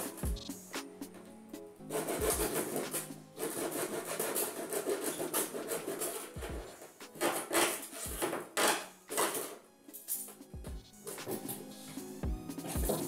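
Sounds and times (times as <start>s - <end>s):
blade sawing through plastic: 1.9s - 9.4s.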